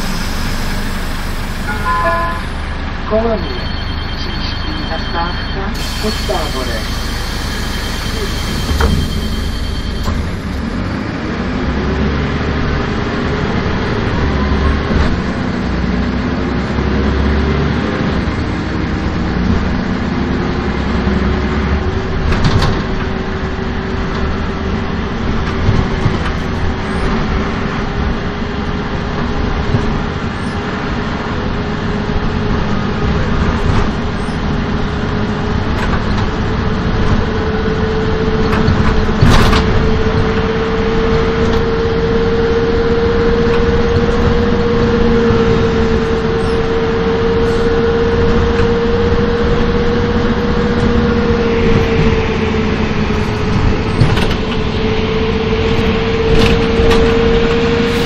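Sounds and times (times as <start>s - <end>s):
rising gearbox whine: 0.0s - 12.0s
bus diesel engine running: 0.0s - 58.0s.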